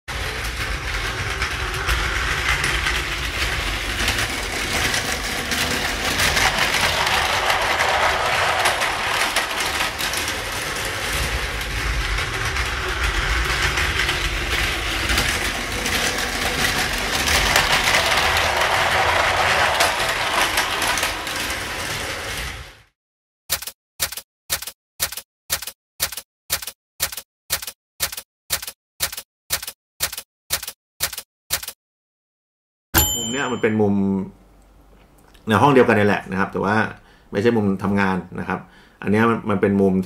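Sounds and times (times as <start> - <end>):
toy train whirring and clattering: 0.1 - 22.9.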